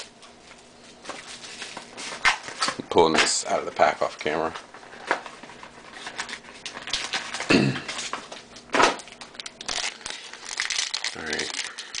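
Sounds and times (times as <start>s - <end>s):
card pack wrapper crinkling: 5.8s - 7.5s, 9.0s - 12.0s.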